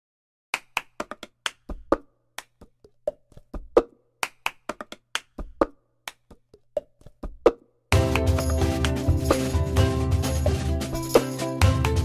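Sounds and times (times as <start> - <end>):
hands clapping: 0.6 - 7.2, 8.1 - 9.4, 11.2 - 12.0.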